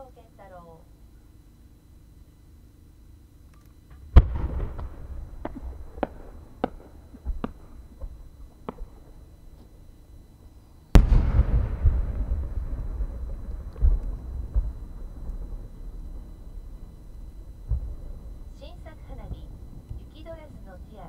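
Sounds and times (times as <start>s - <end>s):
firework shell boom with echo: 11.0s - 15.6s.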